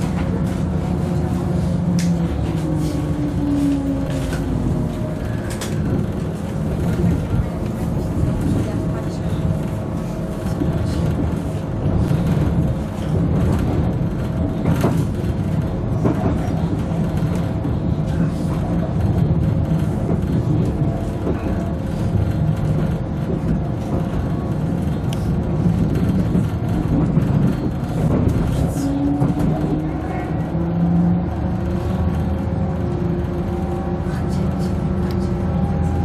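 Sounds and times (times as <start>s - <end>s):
train engine and wheels rumbling: 0.0s - 36.0s
light clicks from track: 1.9s - 2.3s.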